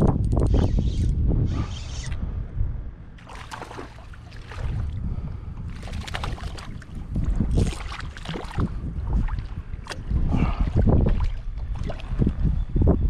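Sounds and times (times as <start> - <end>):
wind noise on microphone: 0.0 - 13.0
water lapping against kayak hull: 3.2 - 12.6.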